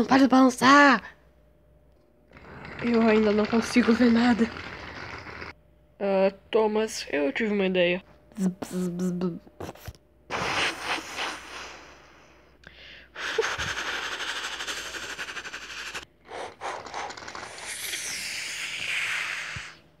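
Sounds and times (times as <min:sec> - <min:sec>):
person imitating a steam train: 0:10.3 - 0:12.2, 0:13.2 - 0:19.8.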